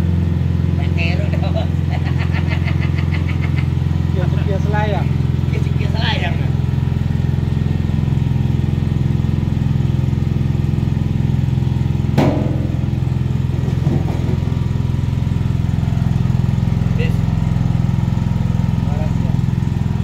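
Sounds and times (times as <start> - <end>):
coconut grating machine droning: 0.0 - 20.0
sharp knocks: 12.2 - 14.8.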